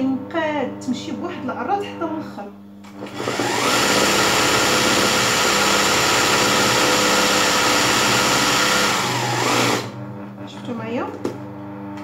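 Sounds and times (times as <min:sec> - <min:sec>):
sewing machine running: 0:03.0 - 0:10.0.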